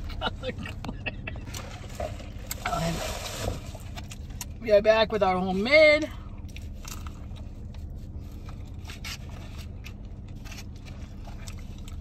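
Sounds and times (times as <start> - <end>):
steady low hum: 0.0 - 12.0
packaging crinkling and scraping: 6.6 - 11.9.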